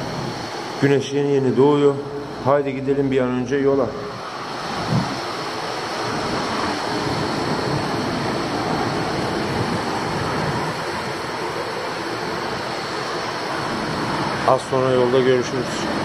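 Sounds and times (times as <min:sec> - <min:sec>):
steady rushing noise: 0:00.0 - 0:16.0.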